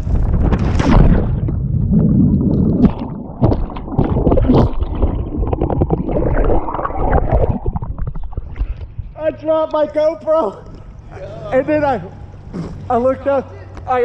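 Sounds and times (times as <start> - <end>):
muffled underwater bubbles churning: 0.8 - 9.2.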